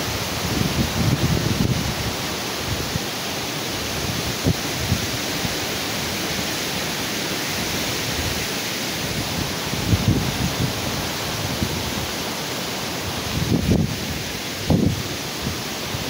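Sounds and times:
heavy wind through trees: 0:00.0 - 0:16.0
wind buffeting microphone: 0:00.2 - 0:03.0, 0:09.0 - 0:12.2, 0:13.1 - 0:16.0.

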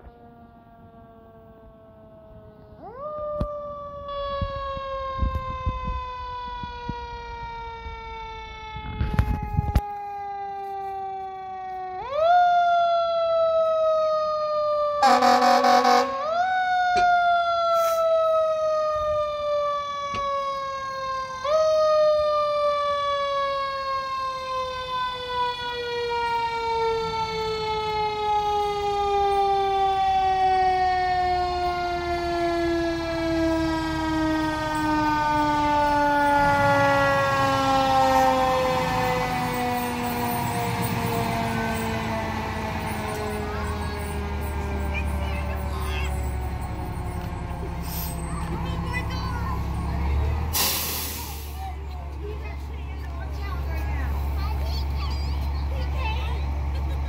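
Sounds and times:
fire engine siren wailing: 0:00.0 - 0:57.0
truck engine rumble: 0:00.0 - 0:57.0
horn blast: 0:15.0 - 0:16.3.

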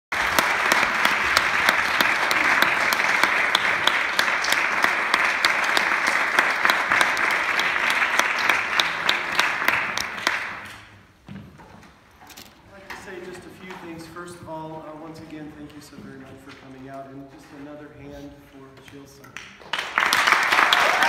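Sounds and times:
audience applauding: 0:00.1 - 0:10.9, 0:19.4 - 0:21.0.

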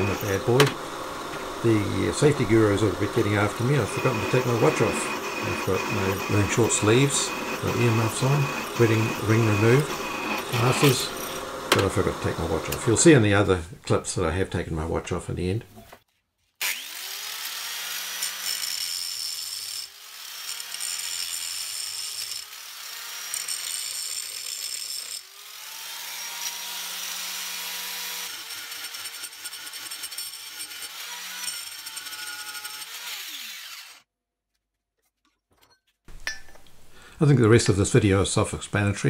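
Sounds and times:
angle grinder grinding steel: 0:00.0 - 0:13.1, 0:16.6 - 0:34.0.

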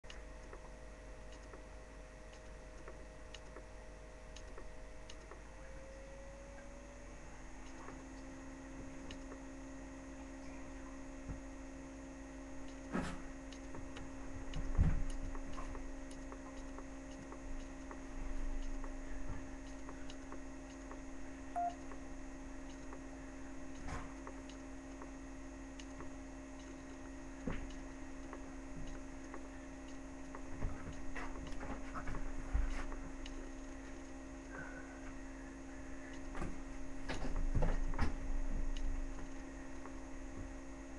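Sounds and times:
steady electrical hum: 0:00.0 - 0:40.9
faint clicks and knocks: 0:12.6 - 0:35.2, 0:35.9 - 0:40.6.

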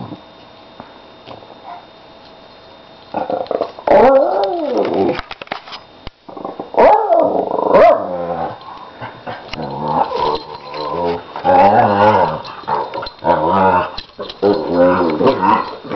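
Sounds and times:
dogs growling: 0:03.1 - 0:05.2, 0:06.3 - 0:15.9.

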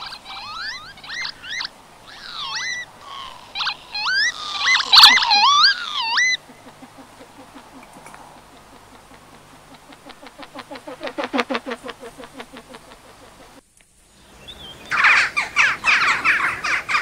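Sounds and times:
animal high quick calls: 0:00.0 - 0:13.6.

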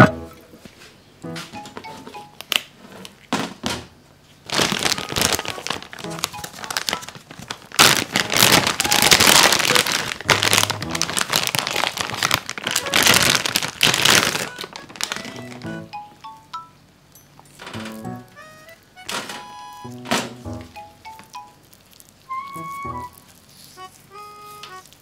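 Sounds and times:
plastic bag crinkling: 0:04.4 - 0:15.7, 0:17.6 - 0:25.0.

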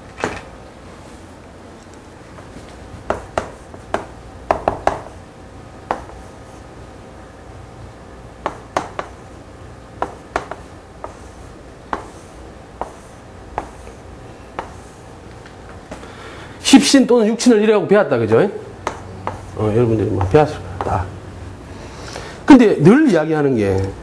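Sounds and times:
chalk tapping on blackboard: 0:03.1 - 0:05.2, 0:05.8 - 0:06.4, 0:08.4 - 0:09.2, 0:10.0 - 0:15.0, 0:18.8 - 0:21.0.

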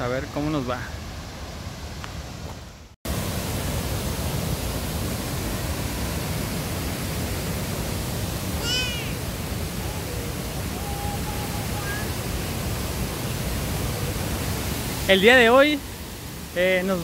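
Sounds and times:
waterfall rushing: 0:03.1 - 0:17.0.

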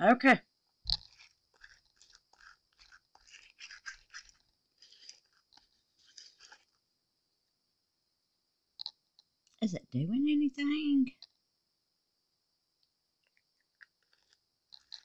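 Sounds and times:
resin grinder scratchy crackling: 0:00.9 - 0:06.7.

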